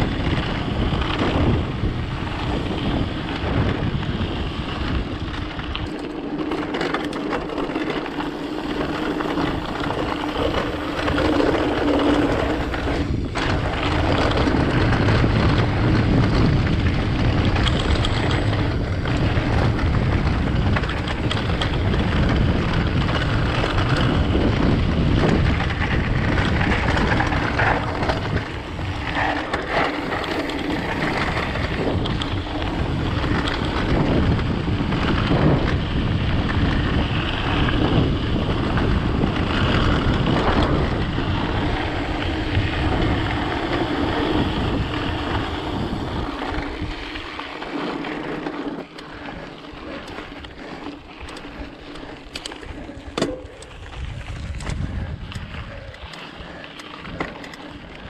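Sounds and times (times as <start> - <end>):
mountain bike rumbling and rattling: 0.0 - 58.0
wind buffeting microphone: 0.0 - 58.0.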